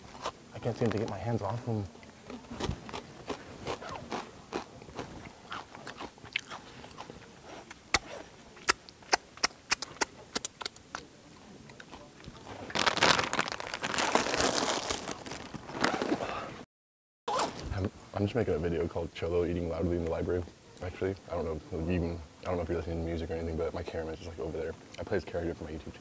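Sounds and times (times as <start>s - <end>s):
person crunching chips: 2.6s - 10.8s, 11.8s - 16.4s.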